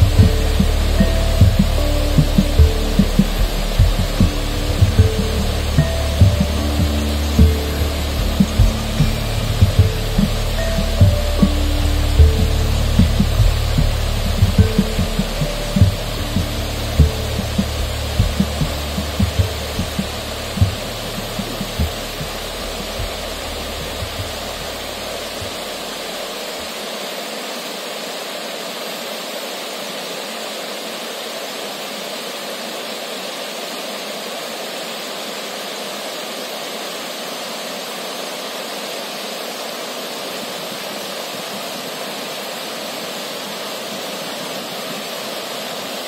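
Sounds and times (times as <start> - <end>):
low thumps: 0.0 - 26.2
low rumble: 0.0 - 26.3
river rushing over rocks: 0.0 - 46.0.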